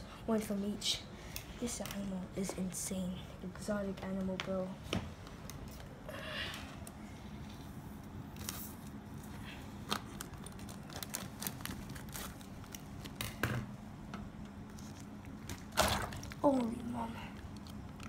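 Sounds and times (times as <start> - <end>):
plastic bag crinkling: 8.4 - 13.4, 14.7 - 18.0.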